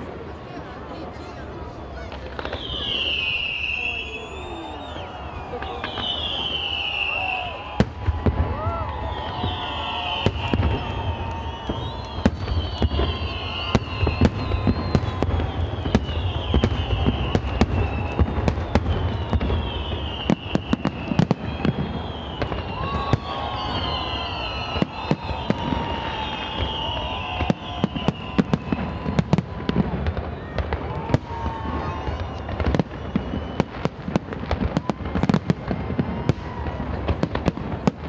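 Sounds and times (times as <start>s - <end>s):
fireworks bangs and cracks: 0.0s - 38.0s
high falling whistles: 2.4s - 7.8s, 8.6s - 29.4s.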